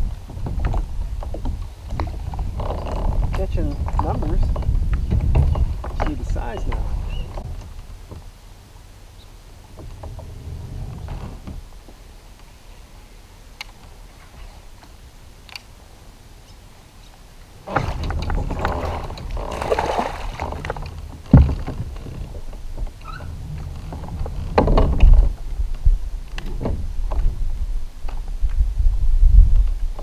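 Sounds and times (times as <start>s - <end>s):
handling bumps on plastic kayak: 0.0s - 8.4s, 17.6s - 27.5s.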